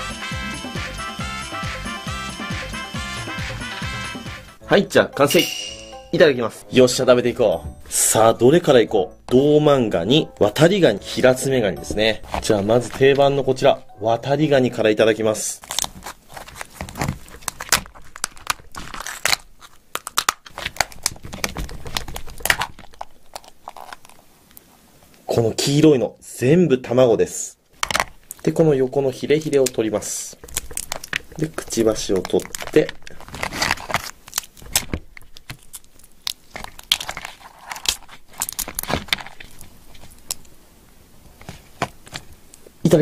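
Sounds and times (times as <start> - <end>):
crab shell cracking and tearing: 15.6 - 25.2, 27.8 - 28.5, 29.4 - 40.6.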